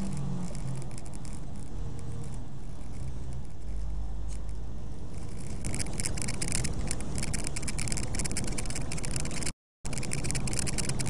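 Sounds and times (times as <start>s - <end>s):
rapid irregular ticking rattle: 0.0s - 11.0s
truck engine and road rumble: 0.0s - 11.0s.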